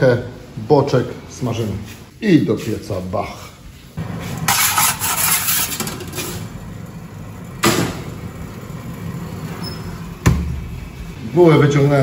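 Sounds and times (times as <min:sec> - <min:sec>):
metal peel scraping oven deck: 0:04.0 - 0:06.6
oven humming: 0:04.0 - 0:12.0.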